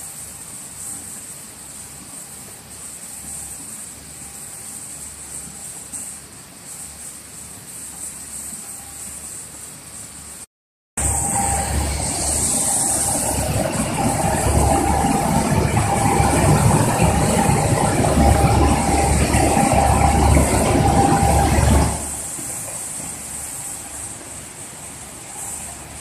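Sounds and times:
shot blasting machine running: 11.0 - 24.1.

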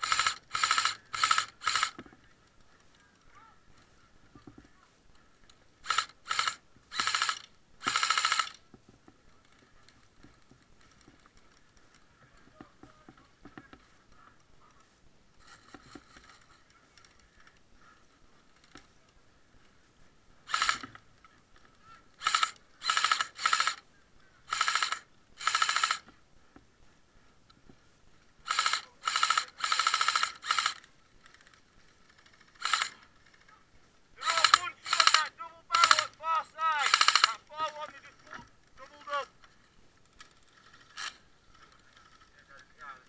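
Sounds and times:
airsoft gun bursts: 0.0 - 2.1, 5.8 - 8.6, 20.4 - 21.0, 22.1 - 23.9, 24.5 - 26.1, 28.4 - 33.6, 34.2 - 39.3.

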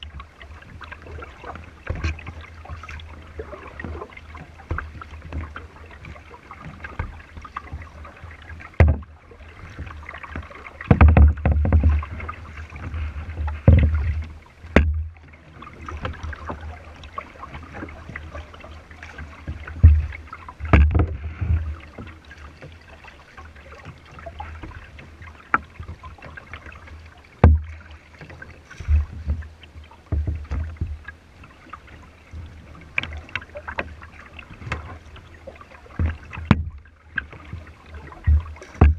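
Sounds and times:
water splashing against kayak hull: 0.0 - 38.9
knocks on kayak hull: 8.6 - 9.1, 9.8 - 15.2, 19.4 - 22.2, 27.4 - 27.8, 30.1 - 31.1, 35.9 - 38.9.

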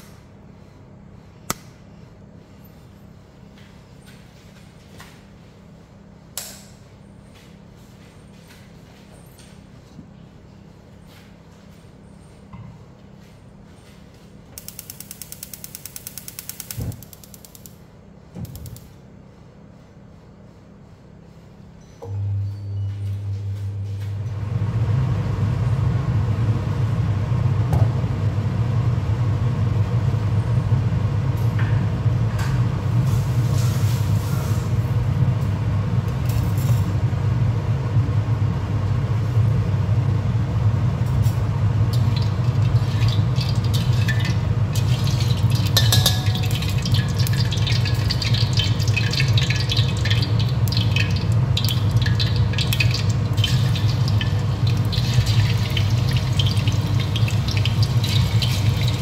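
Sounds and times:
oil heating in a wok: 14.6 - 17.7, 24.3 - 59.0
oil crackling and spitting: 41.9 - 59.0.

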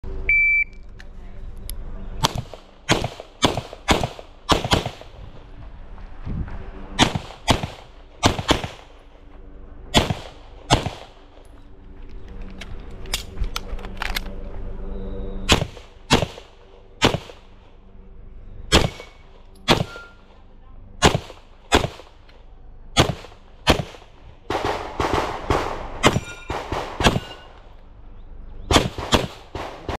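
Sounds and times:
pistol gunshots: 2.2 - 5.2, 7.0 - 9.0, 9.9 - 11.2, 15.5 - 17.5, 18.7 - 20.2, 21.0 - 22.2, 23.0 - 27.6, 28.7 - 30.0.

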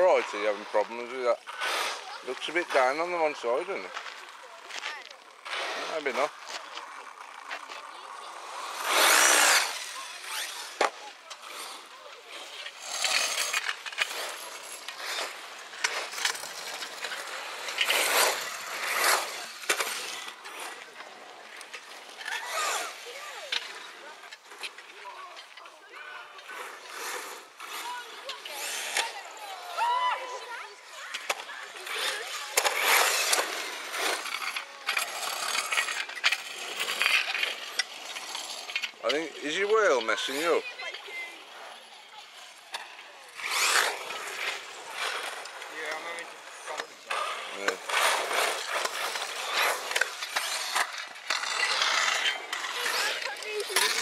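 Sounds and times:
rc car tyres scrabbling on dirt: 0.0 - 54.0.

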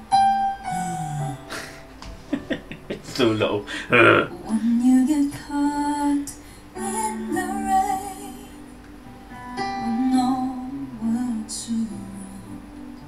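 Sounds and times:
soft instrumental accompaniment: 0.0 - 13.0
woman singing a slow ballad: 0.5 - 1.7, 4.3 - 8.9, 9.5 - 13.0.

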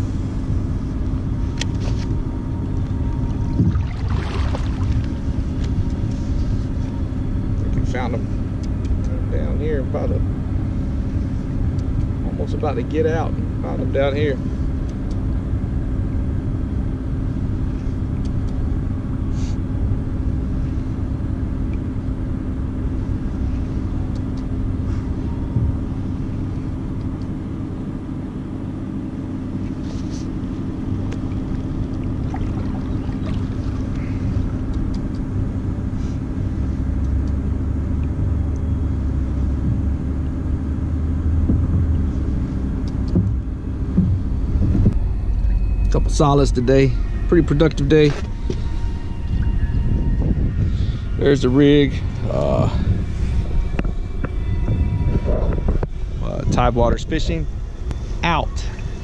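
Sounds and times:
wind buffeting microphone: 2.6 - 6.8, 43.2 - 45.2, 47.9 - 59.0.

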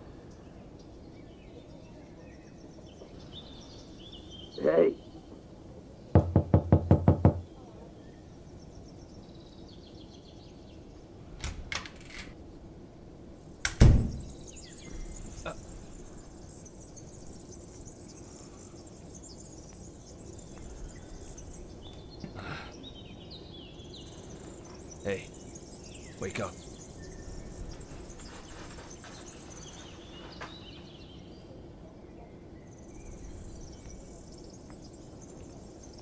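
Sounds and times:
faint bird chirps: 0.0 - 11.4, 13.4 - 36.0
knocking on a door: 6.2 - 7.5
steady high hiss: 7.2 - 36.0.

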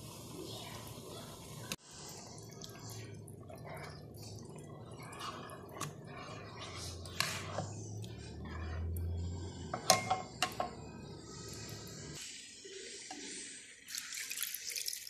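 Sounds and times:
gravy bubbling in a pan: 0.0 - 15.0
plastic ladle stirring: 2.5 - 10.7.

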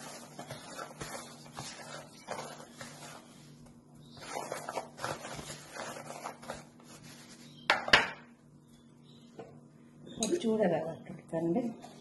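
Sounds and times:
hands scraping fish in semolina: 0.0 - 7.5.

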